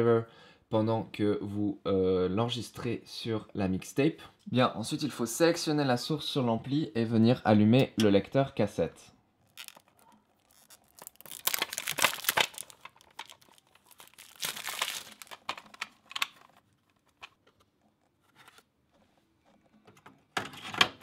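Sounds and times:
cellophane crinkling and tearing: 9.4 - 18.7.

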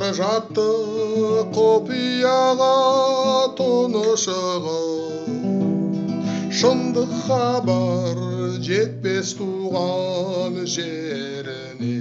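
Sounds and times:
guitar accompaniment: 0.0 - 12.0
man singing slow song: 0.0 - 12.0.

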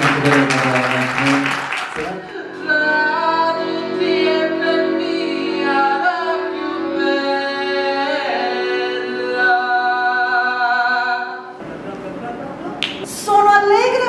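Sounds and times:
accordion playing chords: 0.0 - 10.2.

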